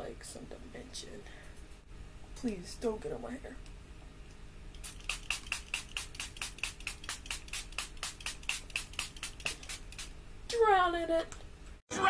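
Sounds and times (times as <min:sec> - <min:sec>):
spray bottle spritzing: 0:04.8 - 0:10.2.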